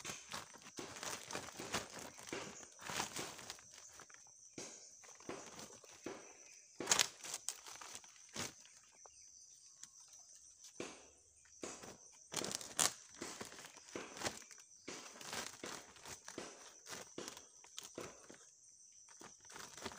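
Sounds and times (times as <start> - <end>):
plastic sack crinkling: 0.0 - 4.3, 5.0 - 6.0, 6.8 - 9.0, 11.8 - 18.4, 19.2 - 19.9.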